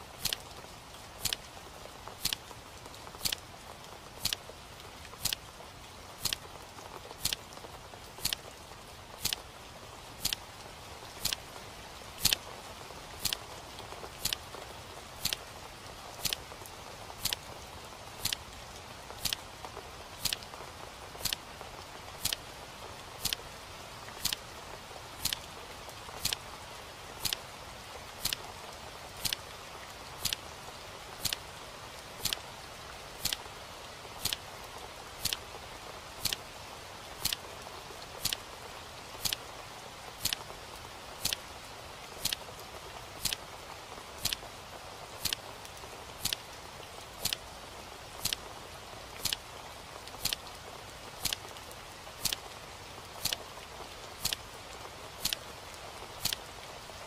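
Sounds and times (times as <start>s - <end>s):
faint steady hiss: 0.0s - 57.0s
clock ticking: 2.2s - 2.4s, 3.2s - 3.4s, 4.2s - 4.4s, 6.2s - 6.4s, 7.2s - 7.4s, 12.2s - 12.4s, 14.2s - 14.4s, 16.2s - 16.4s, 18.2s - 18.4s, 19.2s - 19.4s, 21.2s - 21.4s, 22.2s - 22.4s, 24.2s - 24.4s, 25.2s - 25.5s, 26.2s - 26.4s, 27.2s - 27.4s, 28.2s - 28.4s, 29.2s - 29.4s, 30.2s - 30.4s, 31.2s - 31.4s, 32.2s - 32.4s, 33.2s - 33.4s, 34.2s - 34.4s, 35.2s - 35.4s, 36.2s - 36.4s, 37.2s - 37.4s, 38.2s - 38.4s, 39.2s - 39.4s, 40.2s - 40.4s, 41.2s - 41.4s, 42.2s - 42.4s, 43.2s - 43.4s, 44.2s - 44.4s, 45.2s - 45.4s, 46.2s - 46.4s, 48.2s - 48.4s, 49.2s - 49.4s, 50.2s - 50.4s, 51.2s - 51.5s, 52.2s - 52.4s, 54.2s - 54.4s, 55.2s - 55.4s, 56.2s - 56.4s.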